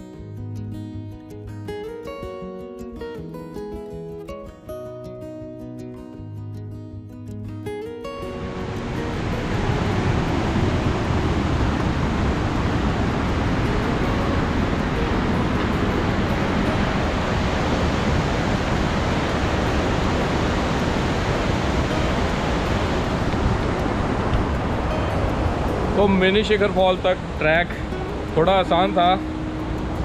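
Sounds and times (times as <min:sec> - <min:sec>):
stream rushing over boulders: 0:08.2 - 0:30.0.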